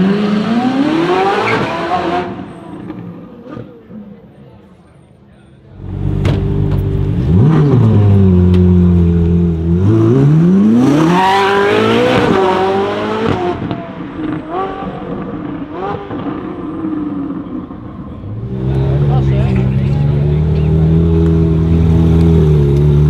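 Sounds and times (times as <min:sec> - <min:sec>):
sports car engine accelerating: 0:05.8 - 0:23.0.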